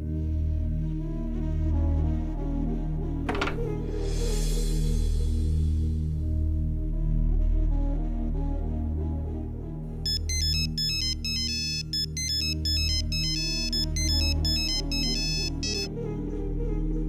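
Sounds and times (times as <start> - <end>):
soft background music: 0.0 - 17.0
phone ringtone melody: 10.1 - 15.9.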